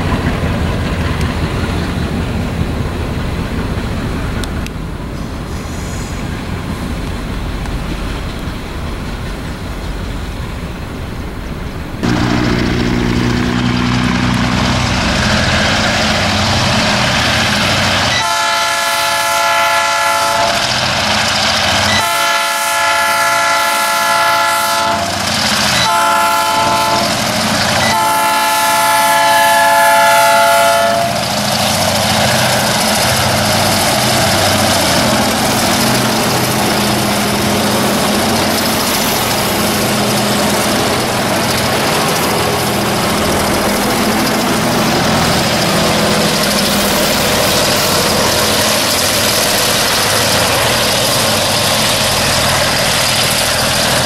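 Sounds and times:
locomotive engines running: 0.0 - 54.0
locomotive air horn blasts: 18.1 - 20.7, 21.9 - 25.2, 25.8 - 31.2.

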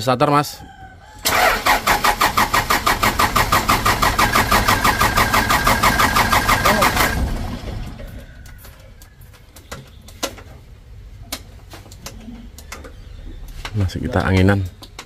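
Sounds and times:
starter motor cranking engine: 1.2 - 8.3.

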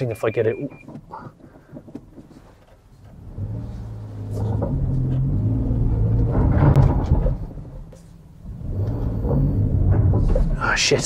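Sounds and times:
truck engine revving: 3.1 - 10.8.

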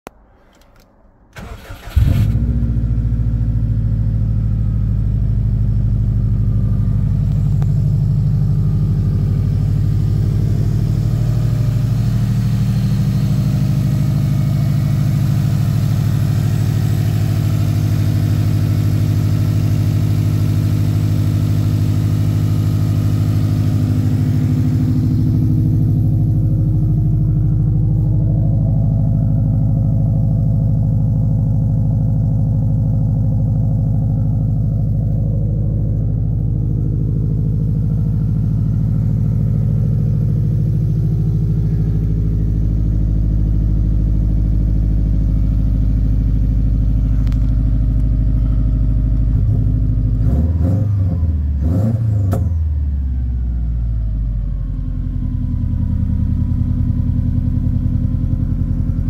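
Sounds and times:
car engine revving and idling: 0.0 - 59.0
car engine cranking: 0.2 - 2.9.

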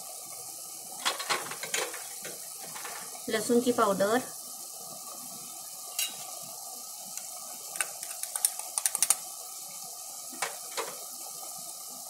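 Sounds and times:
sauce simmering and sizzling: 0.0 - 12.0
sharp clicks and pops: 7.8 - 9.2.

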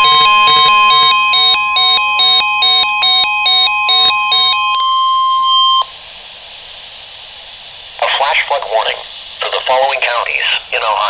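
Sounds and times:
electronic alarm beeping: 0.0 - 6.0
steady alarm tone: 0.0 - 6.0
faint radio hiss: 4.8 - 11.0.

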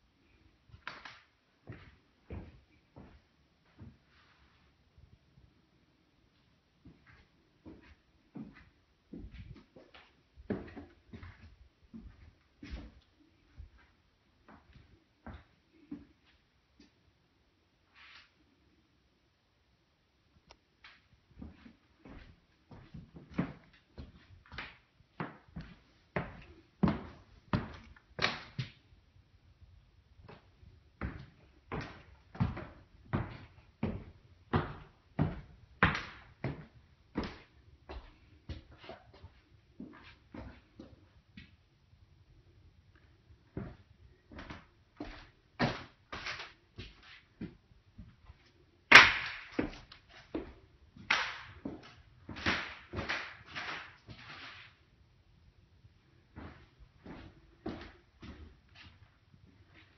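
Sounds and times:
footsteps on hard floor: 1.6 - 4.6, 6.8 - 13.9, 21.4 - 24.6, 25.2 - 28.0, 30.2 - 41.0, 56.4 - 59.9.

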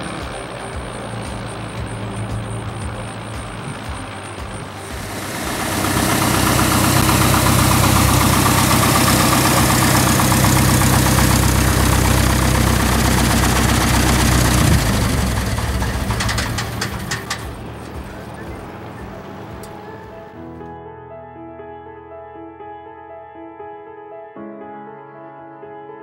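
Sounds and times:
propeller plane engine idling: 0.0 - 20.2.

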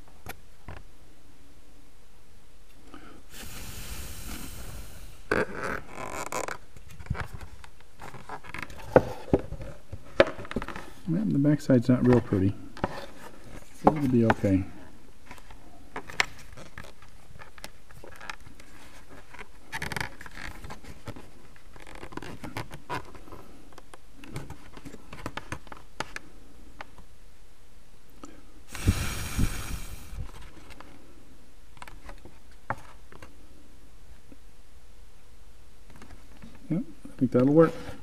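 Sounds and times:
faint steady hum: 0.0 - 38.0
small handling clicks and rubs: 15.2 - 27.0.

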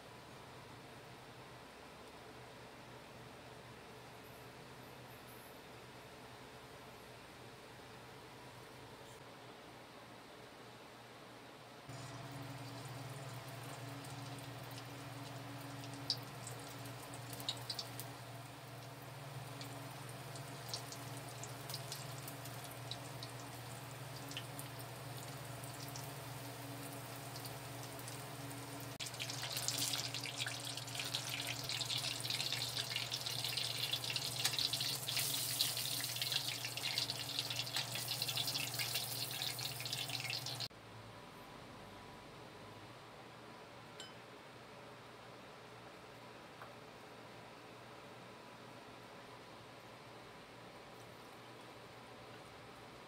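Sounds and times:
low steady hum: 0.0 - 53.0
deep-frying sizzle with pops: 11.9 - 40.7.

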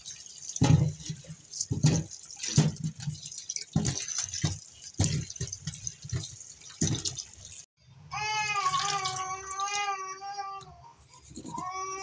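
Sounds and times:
tap water splashing in steel bowl: 0.0 - 7.7.

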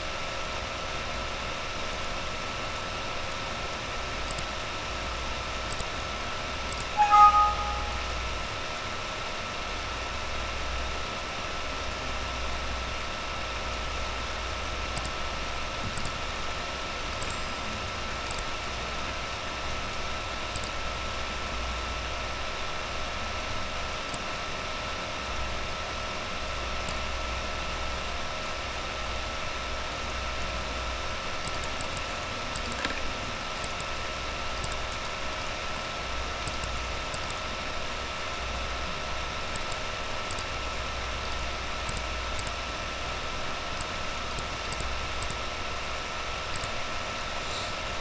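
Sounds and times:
background hiss and hum: 0.0 - 48.0
computer mouse clicking: 4.3 - 4.5, 5.7 - 5.9, 16.0 - 16.2, 17.2 - 17.4, 18.3 - 18.5, 20.5 - 20.8, 31.4 - 33.0, 33.6 - 34.0, 34.6 - 35.0, 36.4 - 37.4, 39.5 - 40.5, 41.9 - 42.6, 43.8 - 45.4, 46.5 - 46.8.

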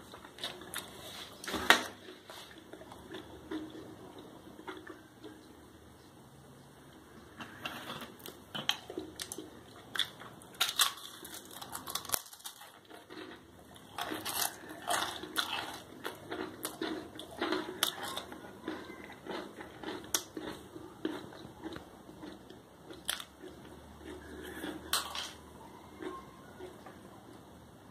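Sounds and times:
crackers crunching: 0.0 - 5.6, 7.2 - 27.5.

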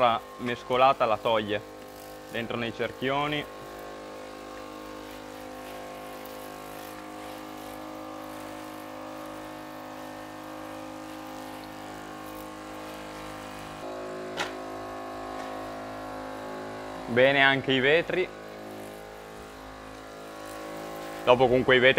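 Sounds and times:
small motor humming: 0.0 - 21.9.

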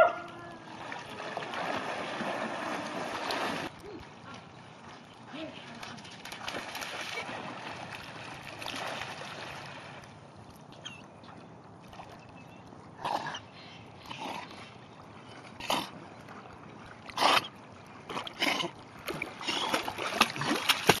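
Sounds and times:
dog splashing in water: 0.7 - 3.7, 5.8 - 10.0, 19.0 - 21.0.

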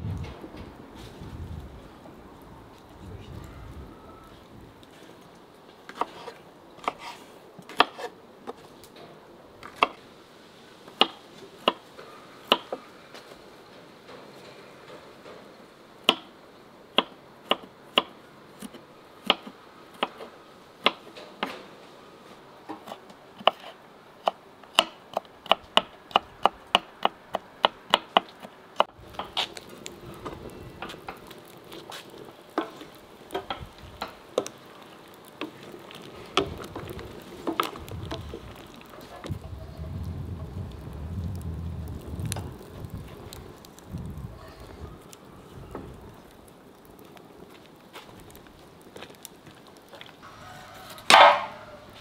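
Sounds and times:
low steady background noise: 0.0 - 52.0
wooden spoon stirring in metal pot: 29.0 - 39.6.

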